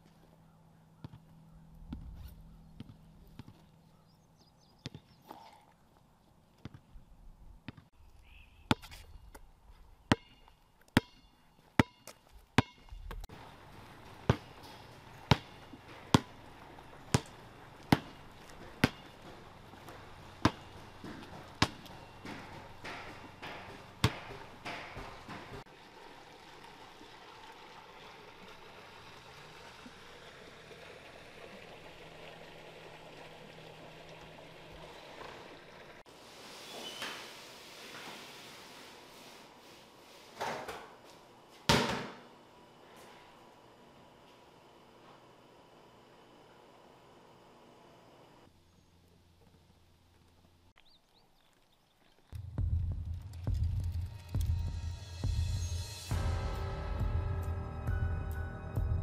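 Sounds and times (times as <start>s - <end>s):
footsteps on stone paving: 12.1s - 25.7s.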